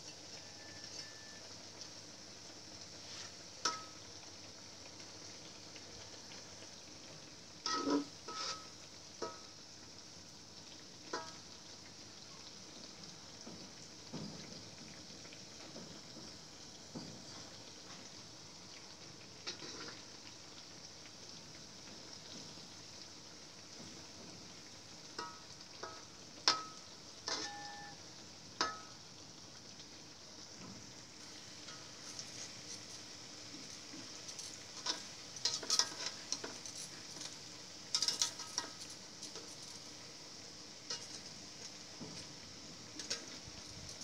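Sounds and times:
fritters sizzling in oil: 0.0 - 44.0
metal utensil clinking on wok: 3.6 - 4.0, 7.6 - 9.4, 11.1 - 11.4, 25.2 - 28.0, 28.6 - 28.9, 34.3 - 37.3, 37.9 - 39.7, 40.9 - 41.2.

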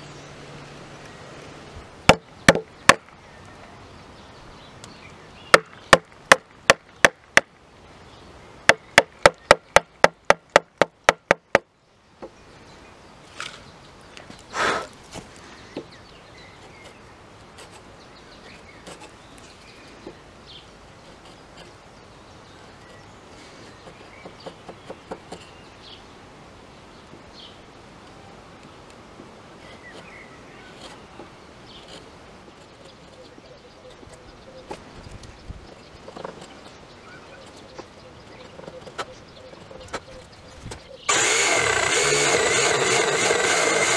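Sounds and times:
chisel blade cutting wood: 41.1 - 43.9.

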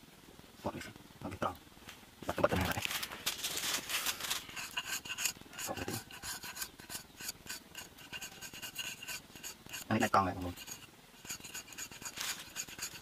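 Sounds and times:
knife blade scraping strand: 4.3 - 13.0.

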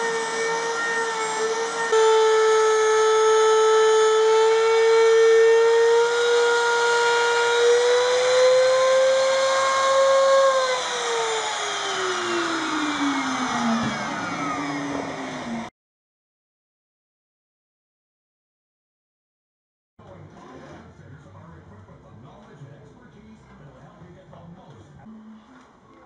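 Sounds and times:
router motor whining: 0.0 - 15.7.

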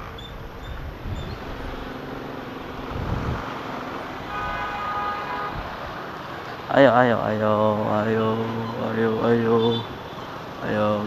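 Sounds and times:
motorcycle engine: 0.0 - 6.7
steady pitched vehicle tone: 0.0 - 11.0
wind and road noise: 0.0 - 11.0.

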